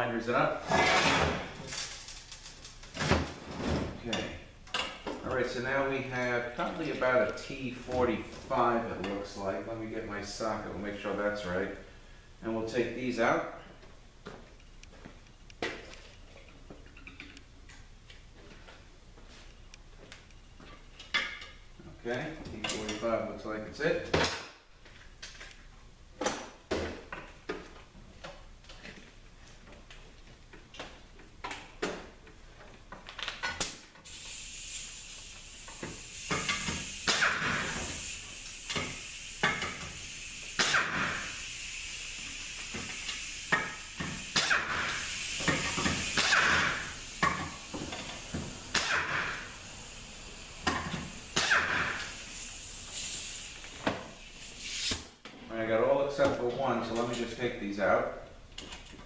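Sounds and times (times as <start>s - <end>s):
pneumatic tool hissing: 34.0s - 55.2s.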